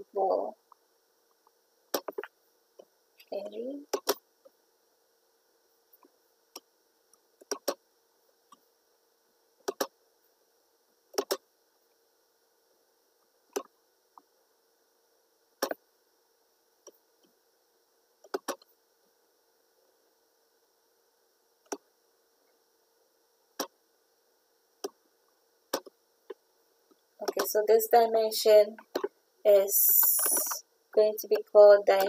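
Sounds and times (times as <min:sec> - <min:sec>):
faint steady hum: 0:00.0 - 0:32.0
computer mouse clicking: 0:07.4 - 0:07.8, 0:09.6 - 0:09.9, 0:11.2 - 0:11.4, 0:18.2 - 0:18.7, 0:29.8 - 0:30.6.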